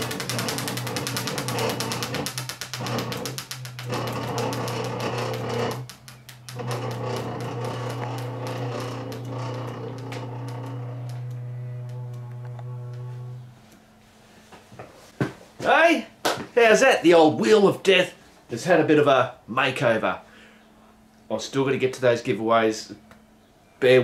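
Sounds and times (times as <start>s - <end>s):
prize wheel flapper clicking: 0.0s - 11.3s
steady low hum: 0.0s - 16.2s.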